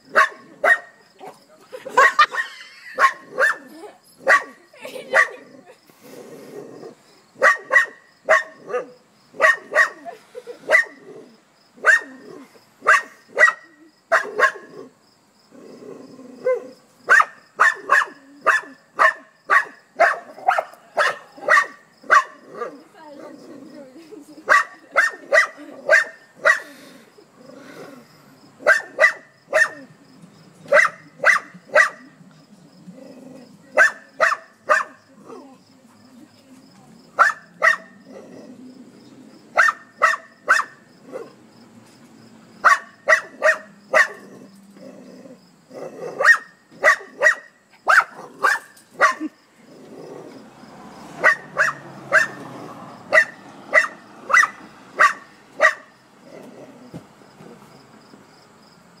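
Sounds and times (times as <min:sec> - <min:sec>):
small dog barking: 0:00.1 - 0:01.4, 0:02.0 - 0:05.4, 0:07.4 - 0:11.0, 0:11.8 - 0:14.8, 0:16.4 - 0:22.8, 0:24.5 - 0:26.7, 0:28.6 - 0:29.9, 0:30.7 - 0:32.2, 0:33.8 - 0:35.0, 0:37.2 - 0:38.0, 0:39.6 - 0:41.4, 0:42.6 - 0:44.3, 0:46.0 - 0:49.3, 0:51.2 - 0:52.4, 0:53.1 - 0:56.0.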